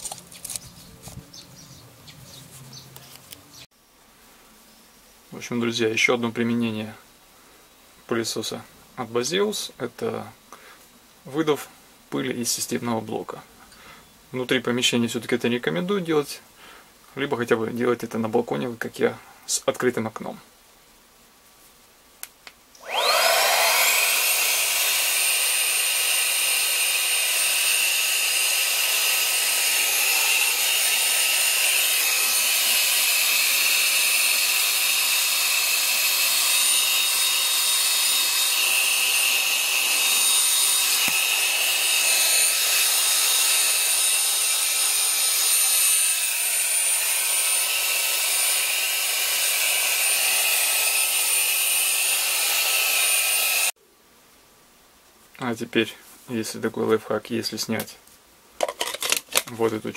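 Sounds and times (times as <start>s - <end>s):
vacuum blower motor whine: 22.8s - 53.7s.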